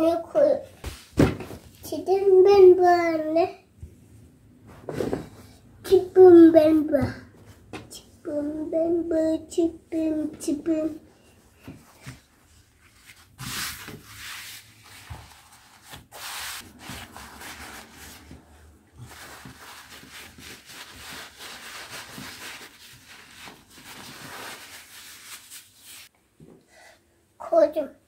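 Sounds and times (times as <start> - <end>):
towel rubbing on wooden table: 11.8 - 26.1.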